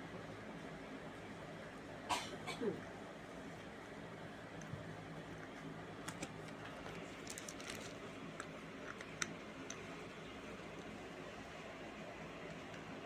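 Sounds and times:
low steady hum: 0.0s - 13.0s
plastic bag crinkling and clicking: 6.1s - 9.8s.

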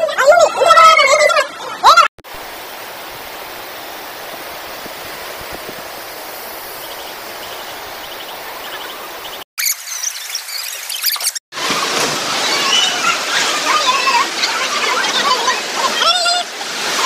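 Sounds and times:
floodwater rushing: 2.2s - 9.5s, 11.5s - 17.0s.

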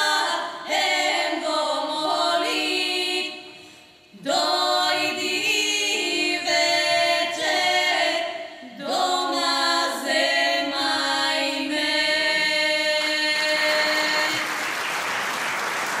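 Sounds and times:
women singing in close harmony: 0.0s - 14.6s
audience applause: 14.2s - 16.0s.

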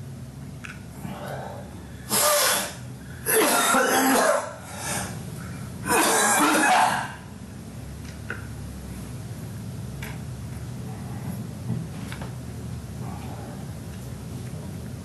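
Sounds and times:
man coughing hard: 2.1s - 4.6s, 5.8s - 7.2s.

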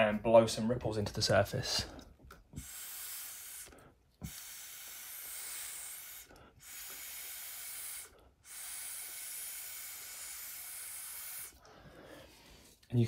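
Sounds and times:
breath blowing through a straw: 2.5s - 12.8s.

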